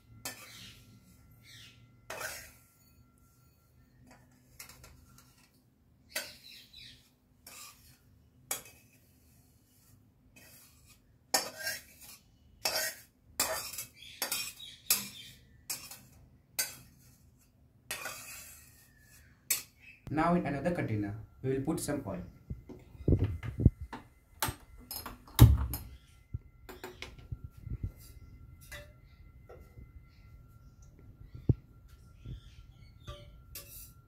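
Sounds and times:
metal spoon scraping a metal pan: 0.0s - 20.0s, 27.9s - 29.7s, 32.1s - 34.0s.

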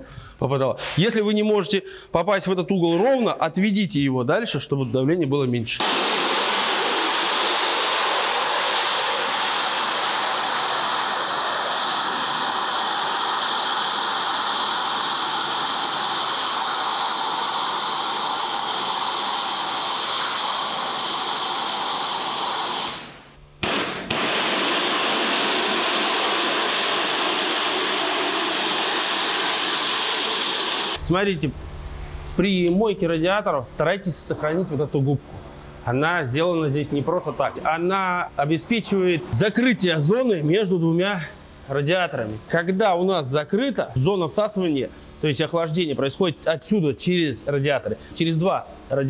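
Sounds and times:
pressure washer water spray hiss: 5.8s - 31.0s.

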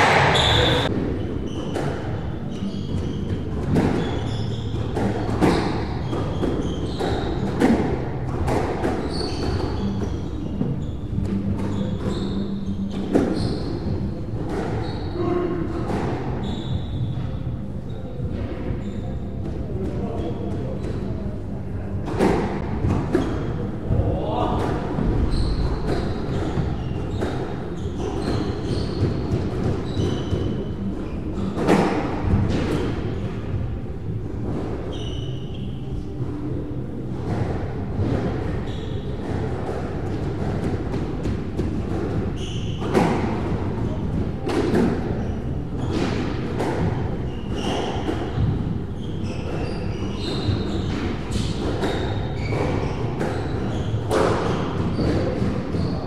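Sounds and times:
squash racket striking ball: 0.0s - 0.9s, 4.8s - 10.3s, 37.2s - 43.8s, 49.4s - 55.7s
shoe squeaks on wooden floor: 0.0s - 21.2s, 24.6s - 56.0s.

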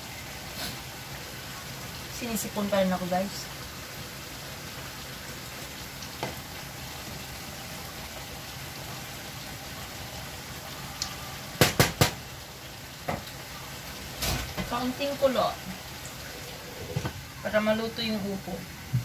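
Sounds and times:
stew bubbling in a pot: 0.0s - 17.6s
sharp knocks: 11.6s - 12.2s.

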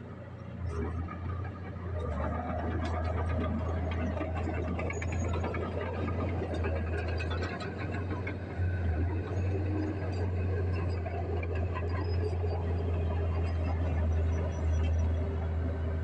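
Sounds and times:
bulldozer diesel engine under load: 0.0s - 16.0s
tracks rattling and clanking: 0.7s - 13.8s.

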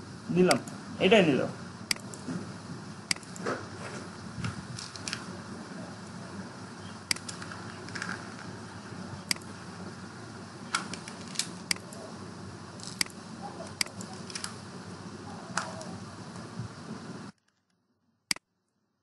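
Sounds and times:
low room hum: 0.0s - 19.0s
computer mouse clicking: 1.9s - 2.2s, 3.1s - 3.4s, 7.1s - 8.2s, 9.3s - 9.5s, 10.8s - 12.0s, 12.8s - 14.6s.

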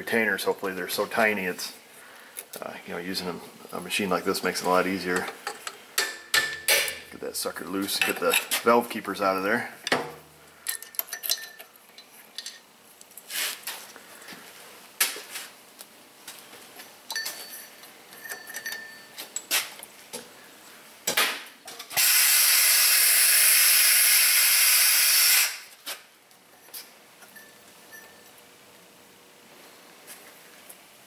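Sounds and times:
small metal clicks and clinks: 10.6s - 13.2s, 17.1s - 19.5s.

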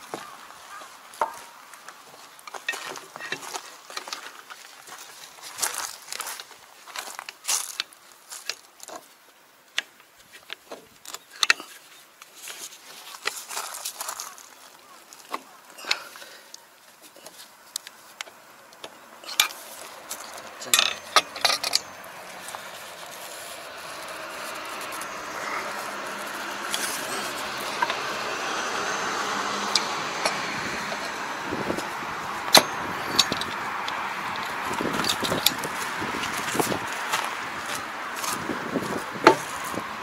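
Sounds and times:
vehicle engine running: 19.1s - 40.0s.

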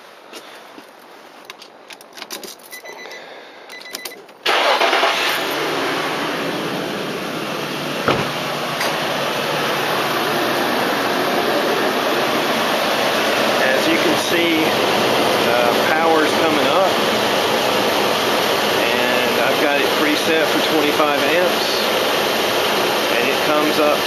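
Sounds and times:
keys clicking in ignition: 1.5s - 5.6s
car engine starting and running: 3.8s - 24.0s.

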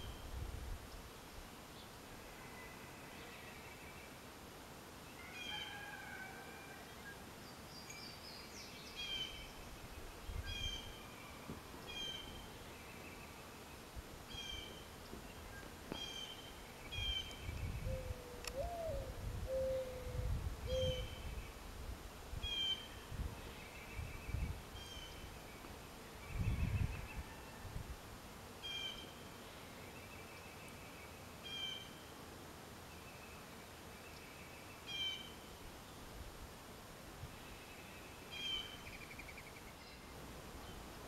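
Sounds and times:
dove cooing: 17.8s - 21.2s.

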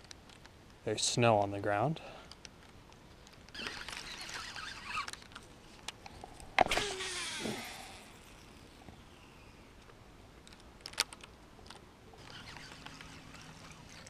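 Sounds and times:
reel spool whirring: 3.5s - 5.3s, 6.7s - 9.8s, 12.2s - 14.0s
fishing reel click: 12.2s - 14.0s.

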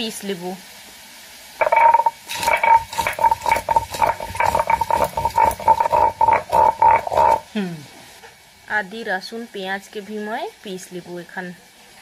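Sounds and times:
stone grinding knocking and scraping: 1.6s - 7.5s.

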